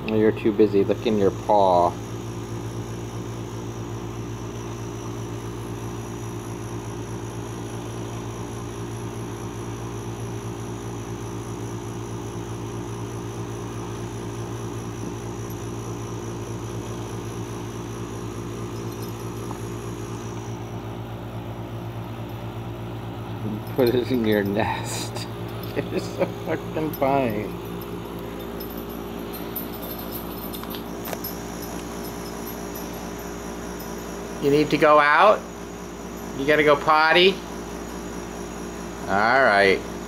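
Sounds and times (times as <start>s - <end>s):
low mechanical hum: 0.0s - 40.0s
faint high whine: 13.7s - 40.0s.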